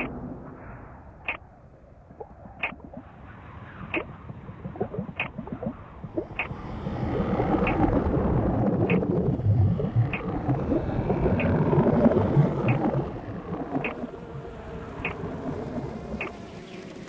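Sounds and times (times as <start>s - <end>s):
grainy low rumble: 0.0s - 17.0s.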